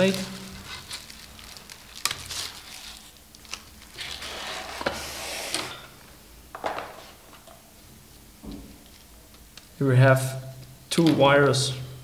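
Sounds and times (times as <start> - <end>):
plastic packaging crinkling: 0.0 - 5.0.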